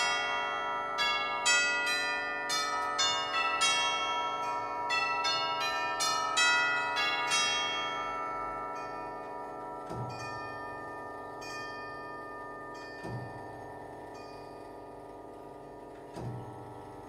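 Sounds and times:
clock chiming tubular bells: 0.0 - 17.0.

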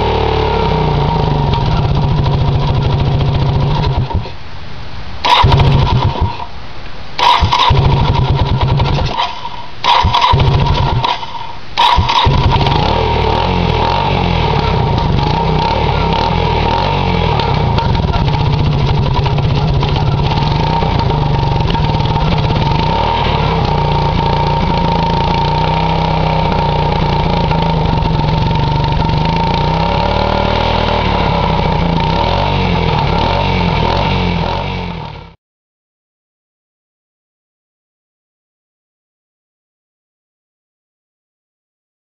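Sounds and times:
engine starting and idling: 1.0 - 4.4, 5.2 - 6.5, 7.2 - 34.0.

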